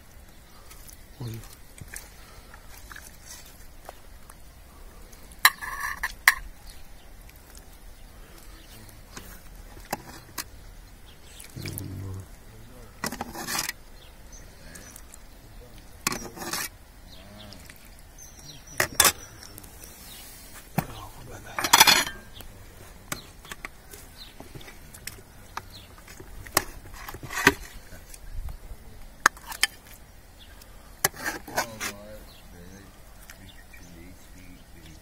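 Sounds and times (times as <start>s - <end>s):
crockery clatter: 18.7s - 19.3s, 20.8s - 22.4s
ladle clinking against metal pot: 21.6s - 22.3s.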